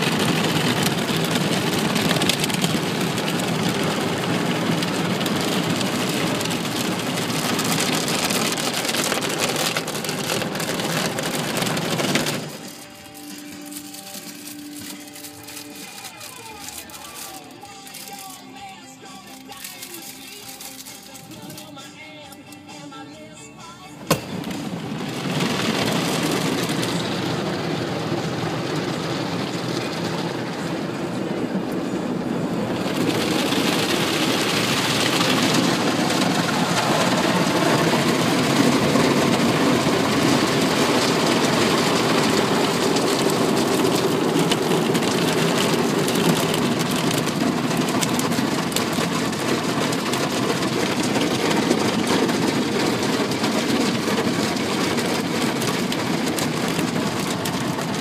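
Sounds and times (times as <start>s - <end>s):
water spraying: 0.0s - 18.4s, 24.1s - 58.0s
car wash brushes scrubbing: 0.0s - 21.7s, 24.4s - 31.6s, 32.2s - 58.0s.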